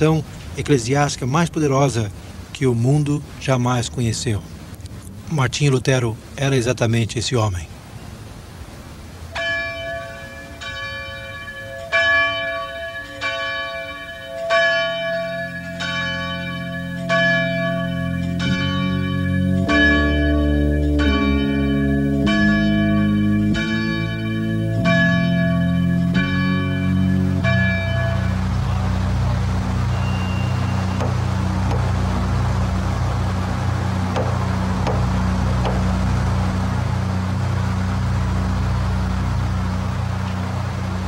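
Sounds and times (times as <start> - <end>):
church bell ringing: 9.3 - 41.0
deeper bell tones: 9.4 - 41.0.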